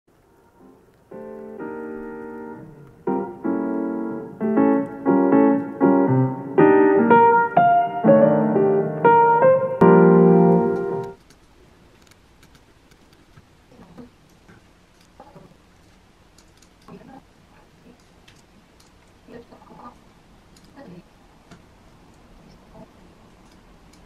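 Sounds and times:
mellow piano chords: 0.1 - 11.2.

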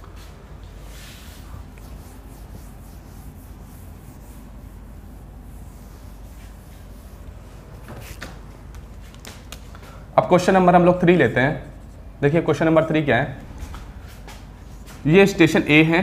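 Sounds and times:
low room hum: 0.0 - 16.0
duster rubbing on whiteboard: 0.7 - 8.4.

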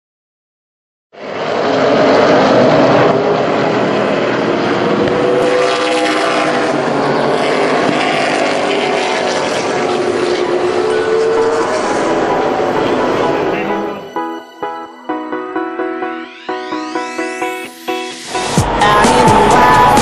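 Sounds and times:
race car engines passing: 1.2 - 14.2, 18.3 - 20.0.

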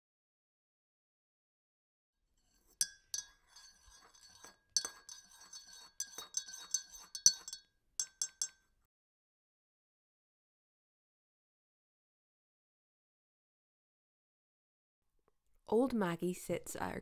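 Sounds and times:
teaspoon clinking china teacup: 2.6 - 8.6.

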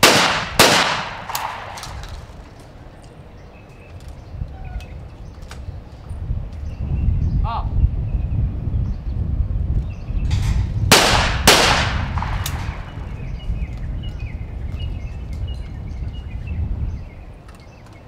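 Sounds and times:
shotgun shots: 0.0 - 2.4, 10.4 - 13.0
wind rumbling on microphone: 0.0 - 18.0.

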